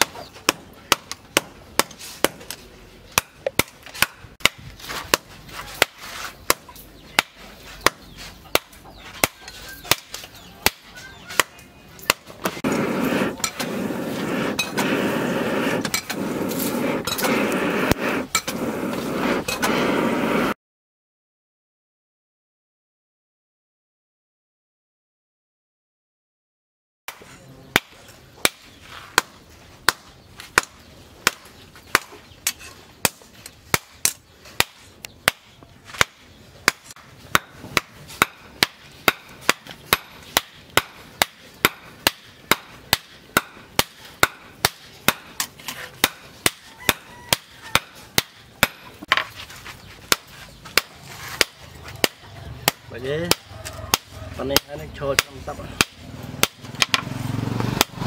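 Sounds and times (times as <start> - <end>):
hammer striking hot steel: 36.0 - 49.3.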